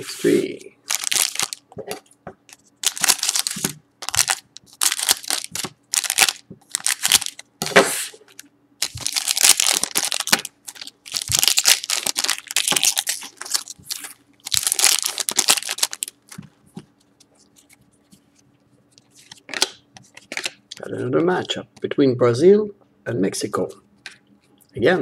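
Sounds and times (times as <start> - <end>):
foil wrapper crinkling: 0.8 - 1.7, 2.5 - 7.5, 8.8 - 16.4.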